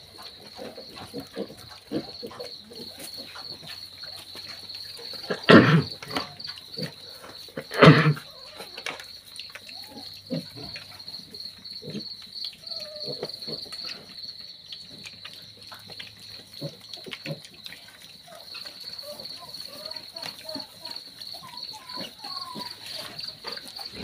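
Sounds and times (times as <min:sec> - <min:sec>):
crickets chirping: 0:00.0 - 0:24.0
piglets chewing and snuffling: 0:00.0 - 0:24.0
faint piglet grunts: 0:05.1 - 0:08.9, 0:18.3 - 0:24.0
piglet squeal: 0:19.1 - 0:23.2.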